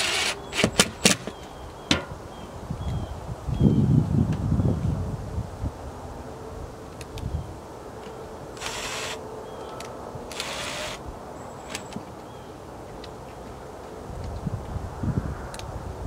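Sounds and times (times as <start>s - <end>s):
cordless drill driving screws: 0.0s - 1.2s, 8.6s - 9.2s, 10.3s - 11.0s.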